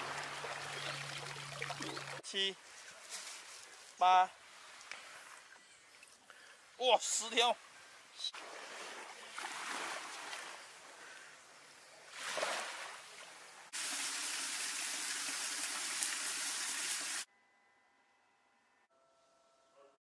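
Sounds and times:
running tap water: 0:13.8 - 0:17.3.

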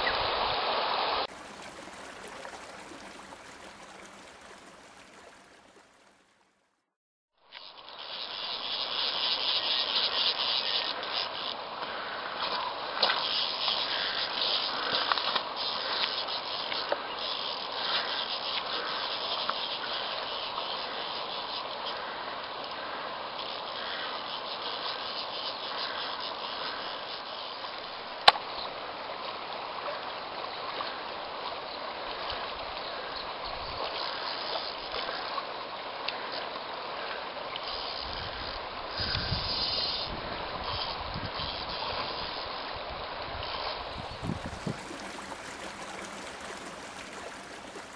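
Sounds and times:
river water rushing over stones: 0:01.3 - 0:06.3, 0:43.9 - 0:47.9.

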